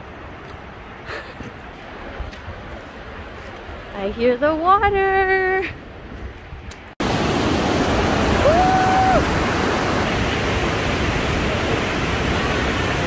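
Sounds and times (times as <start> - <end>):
waterfall rushing: 7.0 - 13.0.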